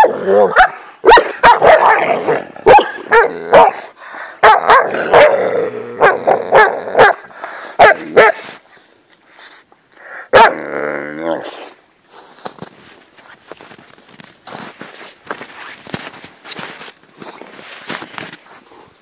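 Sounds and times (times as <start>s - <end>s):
dogs barking: 0.0s - 8.4s, 10.3s - 10.6s.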